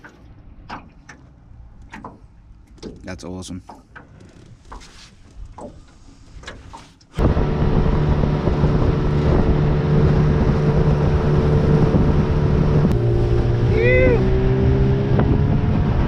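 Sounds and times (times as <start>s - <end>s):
water noise: 0.0s - 16.0s
wind: 0.0s - 16.0s
outboard motor running: 7.1s - 16.0s.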